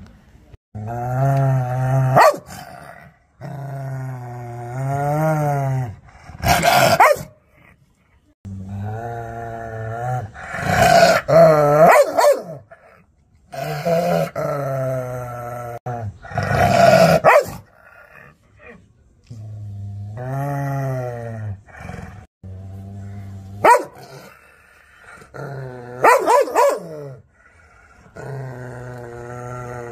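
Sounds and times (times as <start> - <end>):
dog barking and snarling: 1.9 - 3.2, 6.2 - 7.6, 10.4 - 13.0, 16.3 - 18.8, 23.0 - 24.5, 25.2 - 27.2
dog growling: 12.7 - 29.9.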